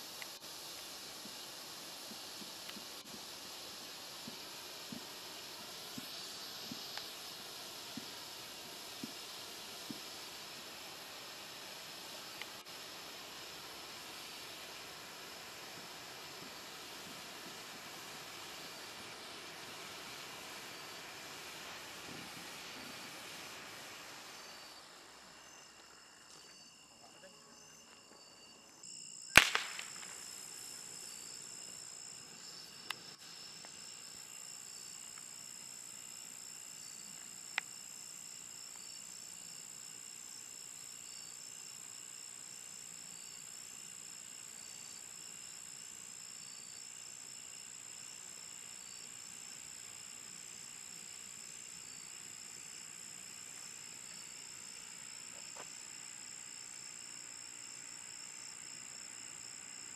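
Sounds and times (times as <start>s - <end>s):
flare hissing: 0.0s - 26.4s, 29.2s - 59.9s
crickets chirping: 0.0s - 59.9s
firework pop: 29.3s - 30.4s.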